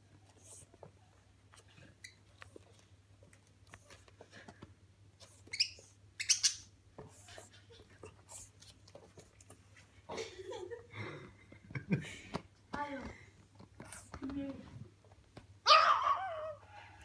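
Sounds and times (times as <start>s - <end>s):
budgerigar chirping: 5.6s - 6.7s.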